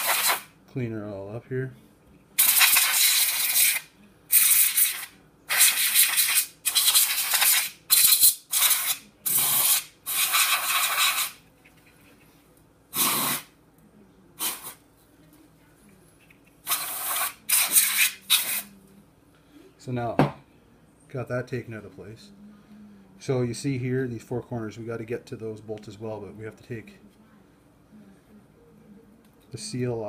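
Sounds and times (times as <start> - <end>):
compressed air duster hissing: 0.0 - 0.5, 2.4 - 11.4, 12.9 - 13.5, 14.4 - 14.8, 16.6 - 18.8.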